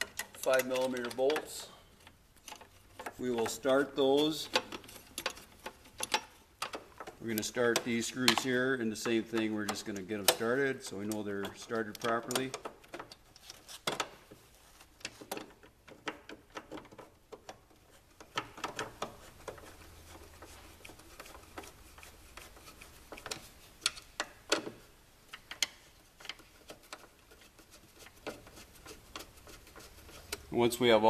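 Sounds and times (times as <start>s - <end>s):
tool tapping on metal: 0.0s - 13.2s.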